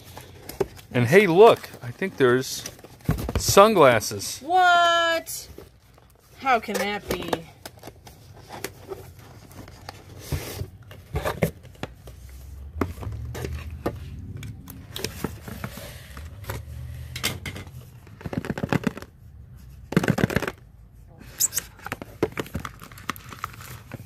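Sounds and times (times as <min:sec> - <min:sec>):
box cutter slitting tape: 0:21.3 - 0:21.8.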